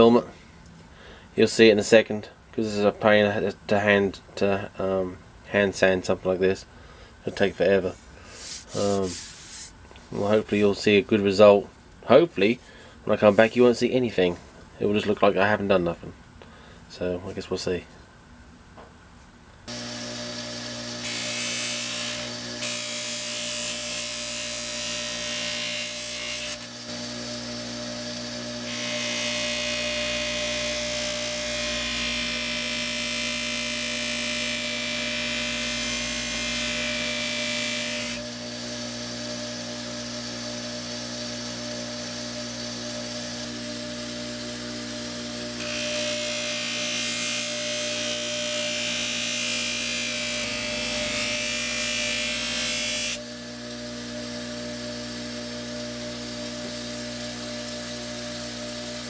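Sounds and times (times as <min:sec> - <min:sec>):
bench grinder motor hum: 0:19.7 - 0:59.0.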